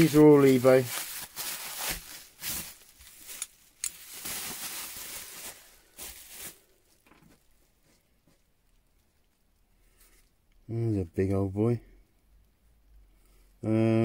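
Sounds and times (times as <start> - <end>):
bubble wrap crackles: 0.0 - 10.4
bubble wrap rustling and crinkling: 0.0 - 10.4.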